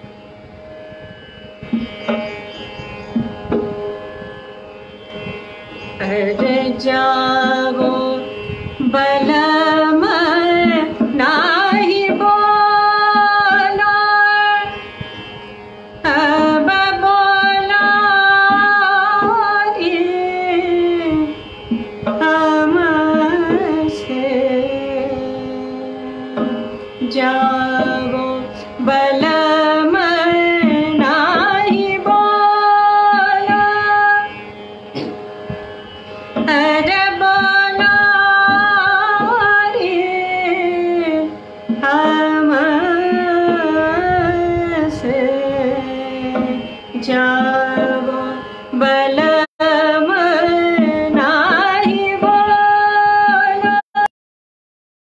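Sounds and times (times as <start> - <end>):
woman singing: 6.0 - 14.8, 16.0 - 21.4, 22.1 - 34.4, 36.4 - 54.1.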